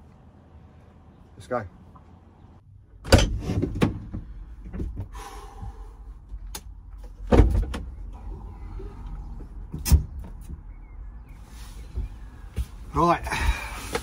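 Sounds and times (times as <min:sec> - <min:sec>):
van door clunks and thumps: 0:03.0 - 0:05.7, 0:07.0 - 0:08.1.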